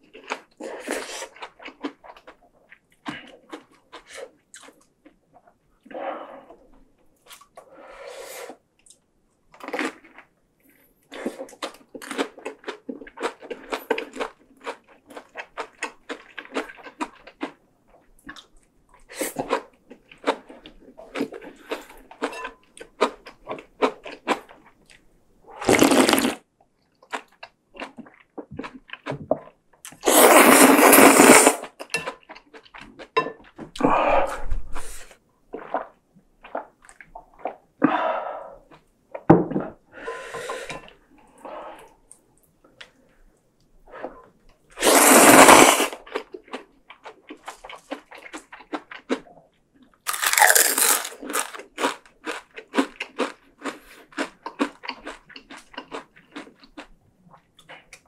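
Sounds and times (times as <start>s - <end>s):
loud slurps of noodle soup: 25.6s - 26.4s, 30.0s - 31.8s, 44.8s - 46.0s
wet chewing: 46.0s - 58.0s.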